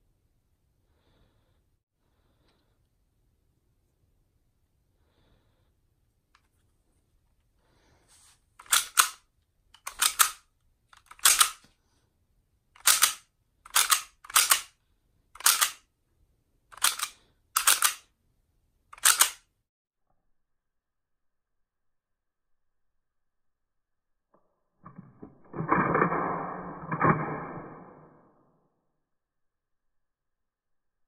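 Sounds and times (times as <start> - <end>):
pistol slide racking clacks: 8.6 - 9.2, 9.8 - 11.6, 12.8 - 14.7, 15.4 - 15.8, 16.7 - 18.1, 19.0 - 19.5.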